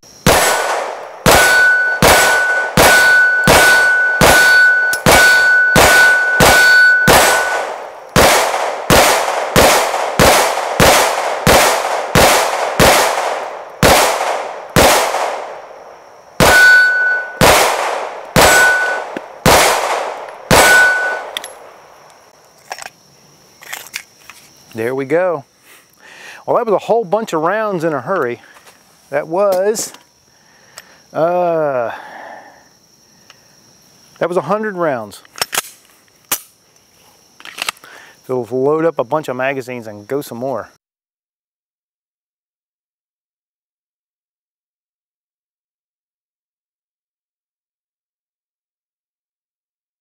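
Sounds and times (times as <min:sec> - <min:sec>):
pistol shots: 0:00.2 - 0:15.7, 0:16.4 - 0:21.7
steel target clang: 0:01.3 - 0:07.8, 0:16.4 - 0:17.6, 0:18.4 - 0:19.2, 0:20.5 - 0:21.6.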